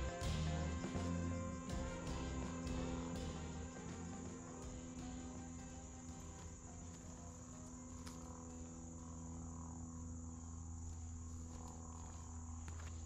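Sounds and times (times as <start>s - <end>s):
insects droning: 0.0s - 13.0s
low hum: 0.0s - 13.0s.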